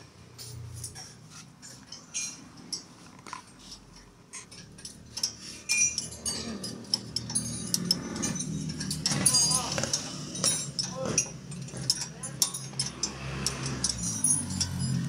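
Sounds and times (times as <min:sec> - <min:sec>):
metal tools clinking: 0:00.3 - 0:15.0.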